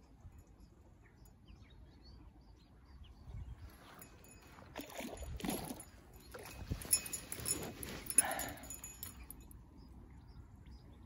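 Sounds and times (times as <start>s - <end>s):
low wind rumble: 2.4s - 11.0s
rustling through grass: 6.4s - 9.0s.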